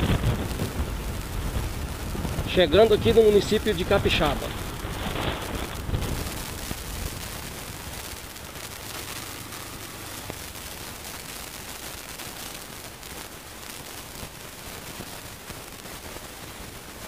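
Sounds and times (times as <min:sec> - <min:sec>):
wind on microphone: 0:00.0 - 0:08.8
road noise: 0:00.0 - 0:17.0.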